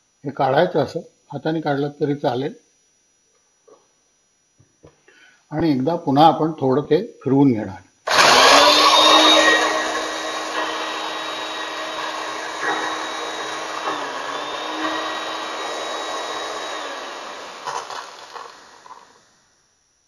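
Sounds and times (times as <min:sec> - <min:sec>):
electric mixer-grinder whining: 0:08.1 - 0:19.2.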